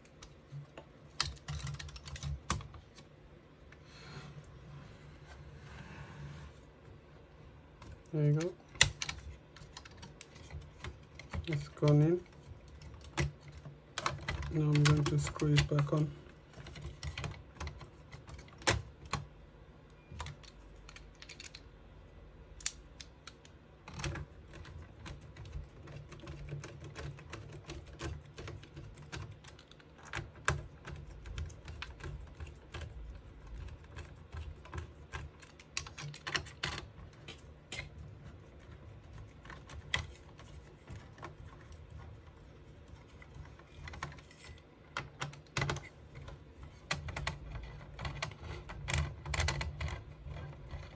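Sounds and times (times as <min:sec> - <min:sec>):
faint low hum: 0:00.0 - 0:50.9.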